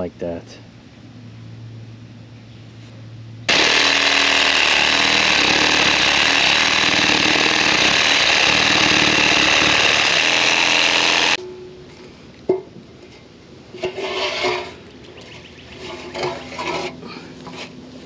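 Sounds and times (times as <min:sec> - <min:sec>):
reciprocating saw cutting wood: 0:03.5 - 0:11.4.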